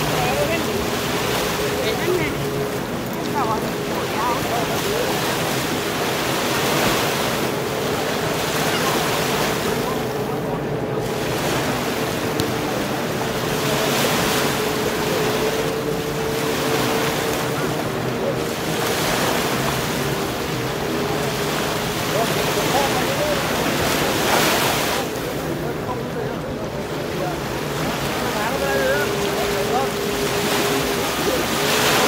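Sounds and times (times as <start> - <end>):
sea surf breaking on beach: 0.0 - 32.0.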